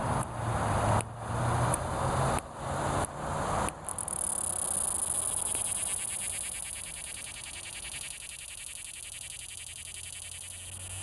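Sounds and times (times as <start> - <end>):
cicada buzzing: 3.8 - 11.0.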